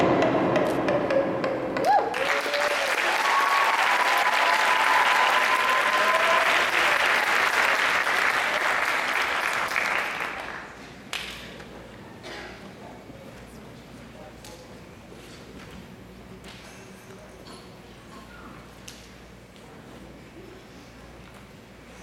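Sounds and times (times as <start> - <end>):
music: 0.0 - 2.1
long held shouts: 1.8 - 6.8
audience applauding: 1.8 - 11.2.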